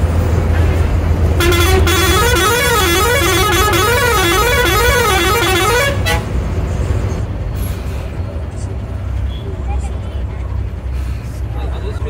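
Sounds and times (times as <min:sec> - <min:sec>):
engine and road rumble: 0:00.0 - 0:12.0
bus horn warbling tone: 0:01.4 - 0:06.4.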